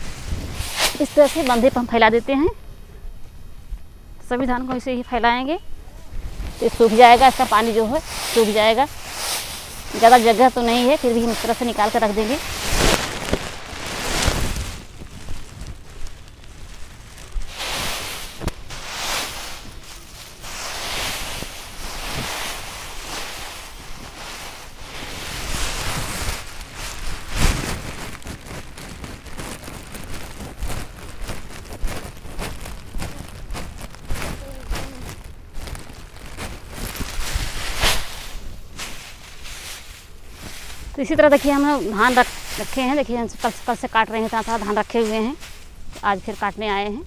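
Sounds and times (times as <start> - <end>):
rice stalks rustling: 0.0 - 2.4, 5.9 - 47.0
wind buffeting microphone: 0.0 - 4.0.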